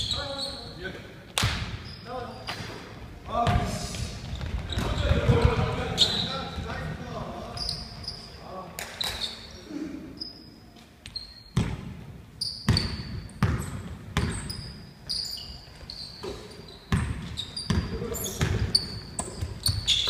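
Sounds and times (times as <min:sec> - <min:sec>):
sneakers squeaking on floor: 0:00.0 - 0:20.0
basketball bouncing on hardwood floor: 0:12.7 - 0:14.5.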